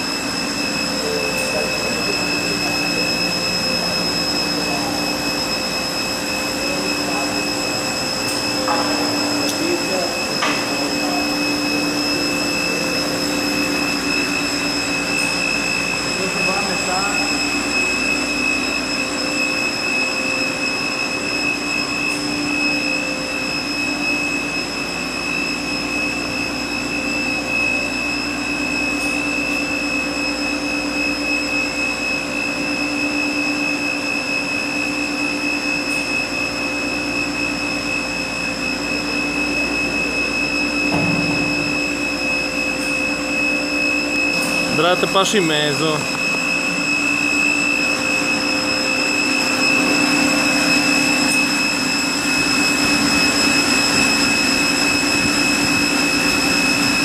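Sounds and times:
high whining tones: 0:00.0 - 0:57.0
machine hum: 0:00.0 - 0:57.0.

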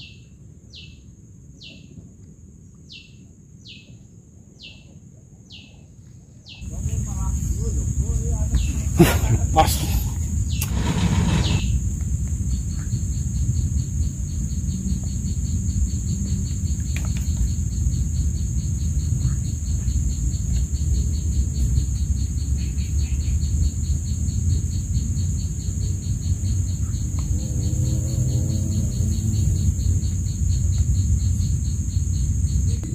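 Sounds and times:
rapid insect chirping: 0:00.0 - 0:32.9
insects buzzing: 0:06.5 - 0:32.9
loud low rumble: 0:27.0 - 0:32.9.

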